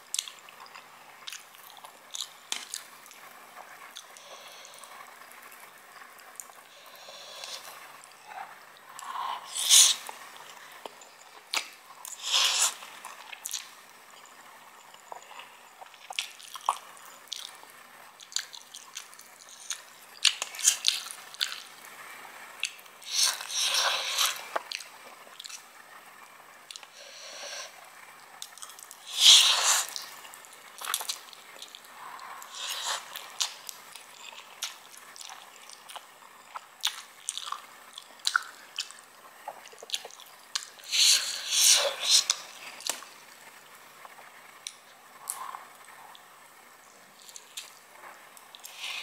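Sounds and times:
chewing noodles: 0:00.1 - 0:05.0, 0:06.4 - 0:21.8, 0:22.6 - 0:25.7, 0:28.4 - 0:43.1, 0:48.4 - 0:49.0
slurping noodles: 0:06.7 - 0:10.4, 0:12.0 - 0:13.6, 0:23.0 - 0:24.6, 0:29.0 - 0:30.2, 0:30.8 - 0:33.7, 0:40.8 - 0:42.9, 0:48.6 - 0:49.0.

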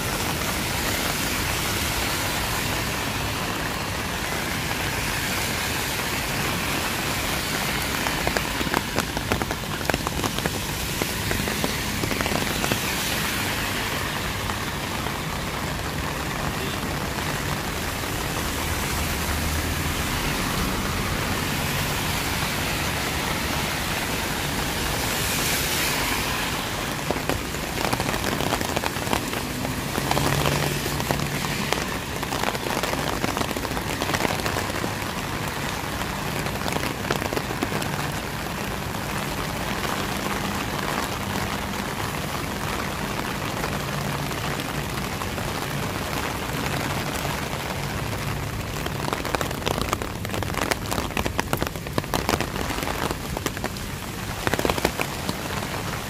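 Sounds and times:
heavy rain on street: 0:00.0 - 0:56.0
passing vehicle hum: 0:17.9 - 0:32.3.

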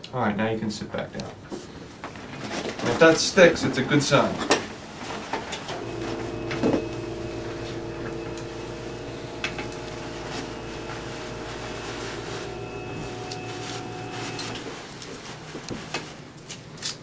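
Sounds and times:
electric motor humming: 0:05.8 - 0:14.7
paper drape crinkling: 0:09.6 - 0:17.0.

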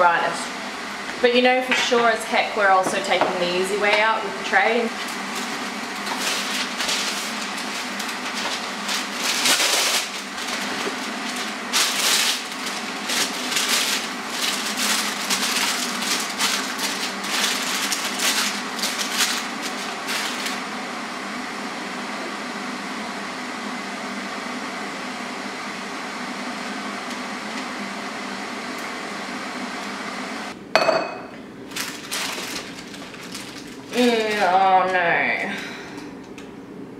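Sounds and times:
baking paper crinkling: 0:04.6 - 0:20.7, 0:31.7 - 0:35.6.

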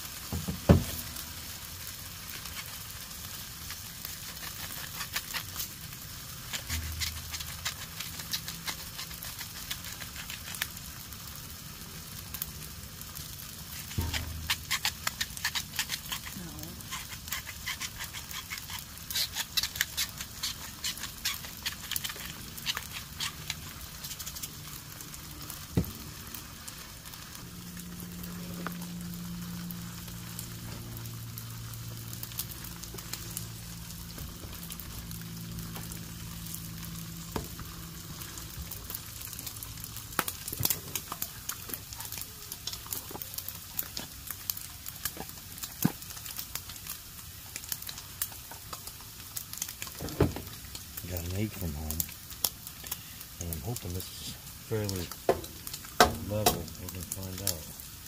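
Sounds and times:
meat sizzling and spattering: 0:00.0 - 0:58.0
low steady hum: 0:19.9 - 0:45.4.

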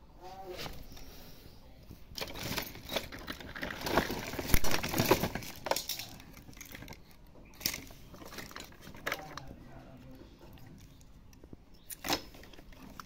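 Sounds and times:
electronic parts clattering: 0:02.1 - 0:09.6
plastic crinkling: 0:02.1 - 0:13.0.

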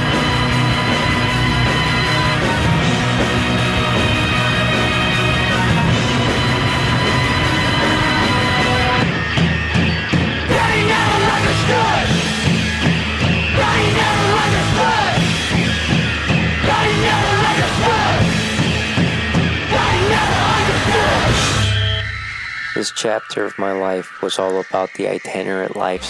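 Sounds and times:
punk rock music: 0:00.0 - 0:26.0
yelled sung vocal: 0:10.4 - 0:12.4, 0:13.5 - 0:15.7, 0:16.5 - 0:18.6, 0:19.6 - 0:21.6.

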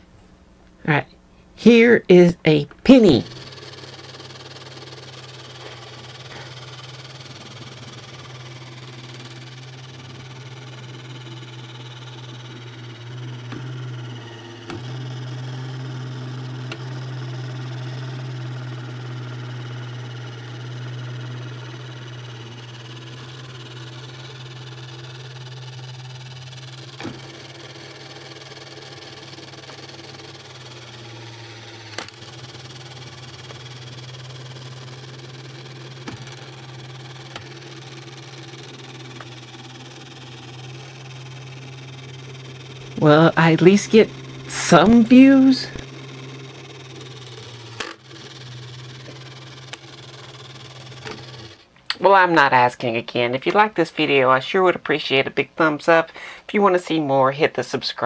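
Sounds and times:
toy motor and gears whirring: 0:02.8 - 0:54.5.

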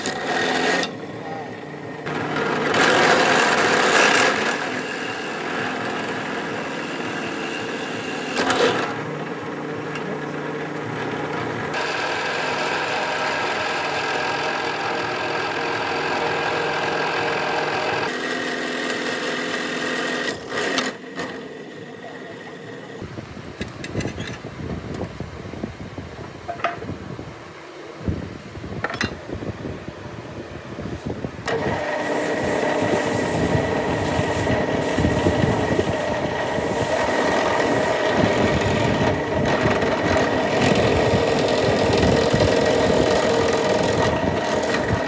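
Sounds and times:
drill bit boring into wood: 0:00.0 - 0:01.0, 0:02.0 - 0:09.1, 0:11.2 - 0:21.8, 0:31.5 - 0:45.0
drill press motor hum: 0:00.0 - 0:24.3, 0:31.4 - 0:45.0.

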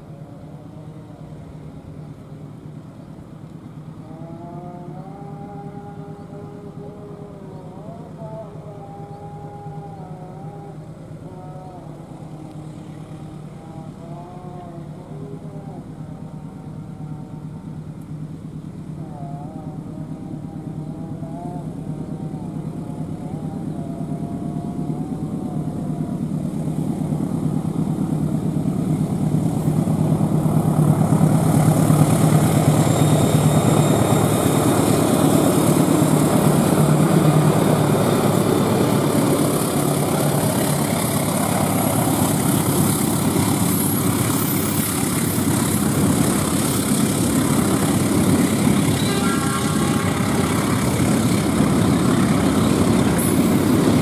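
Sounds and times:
diesel locomotive engine hum: 0:00.0 - 0:54.0
train wagons rumbling: 0:20.1 - 0:54.0.

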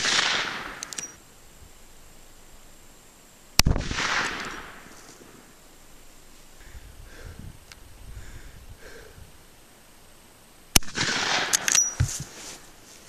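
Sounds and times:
gunshot echo off woods: 0:00.0 - 0:00.8, 0:03.6 - 0:04.9, 0:10.8 - 0:11.6
rifle shot: 0:00.0 - 0:01.0, 0:03.6 - 0:04.9, 0:10.7 - 0:11.9
short clicks: 0:00.7 - 0:01.2, 0:10.8 - 0:12.0.

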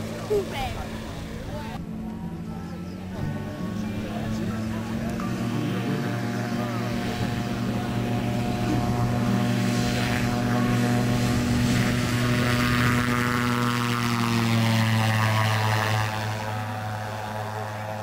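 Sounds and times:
propeller plane taking off: 0:00.0 - 0:18.0.

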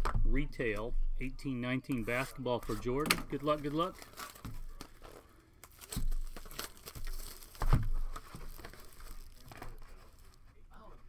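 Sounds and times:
plastic wrapping crinkling and tearing: 0:02.0 - 0:10.5
dull thumps: 0:05.8 - 0:08.7.

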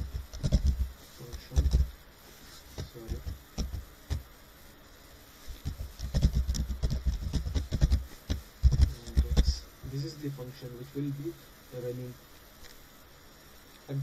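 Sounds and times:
computer keyboard typing: 0:00.0 - 0:01.9, 0:02.8 - 0:04.2, 0:05.6 - 0:09.6.

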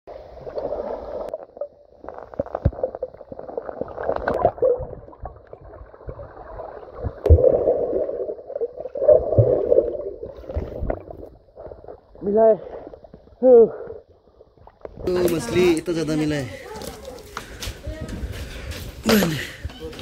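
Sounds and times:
underwater river sloshing: 0:00.1 - 0:15.7.

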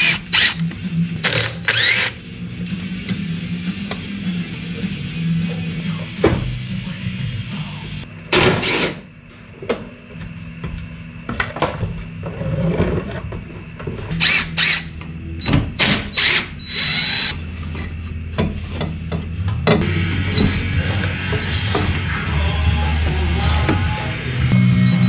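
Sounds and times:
cordless drill spinning: 0:01.3 - 0:02.1, 0:16.2 - 0:17.3.

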